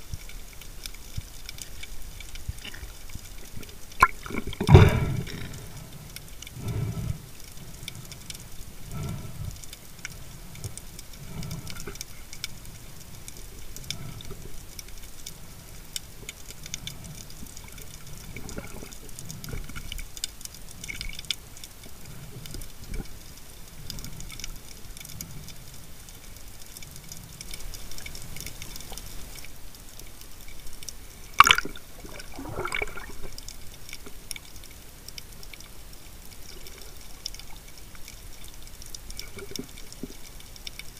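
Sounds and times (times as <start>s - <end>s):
faint steady crackle underwater: 0.0s - 40.9s
low swishes of water: 2.0s - 14.7s, 31.0s - 34.3s.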